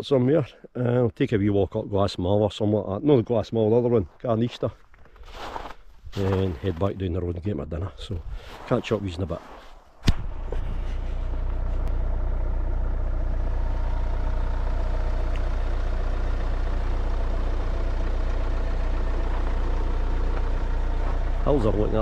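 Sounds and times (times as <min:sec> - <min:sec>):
van driving on road: 0:08.2 - 0:22.0.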